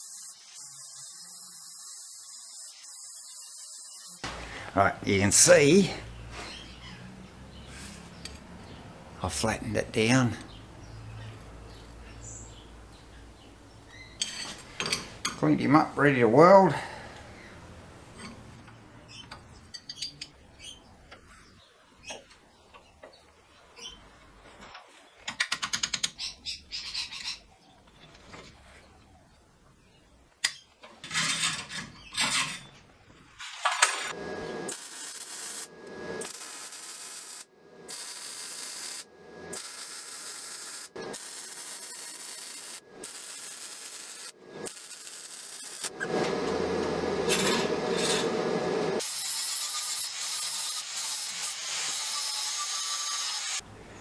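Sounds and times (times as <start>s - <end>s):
welder crackling: 33.4s - 53.6s
angle grinder grinding metal: 34.1s - 53.6s.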